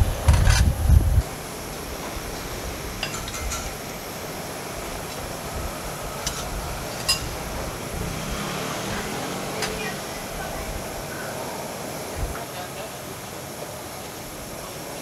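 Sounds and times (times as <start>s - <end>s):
gas burner running: 0.0s - 15.0s
light metallic clinks: 3.0s - 3.8s.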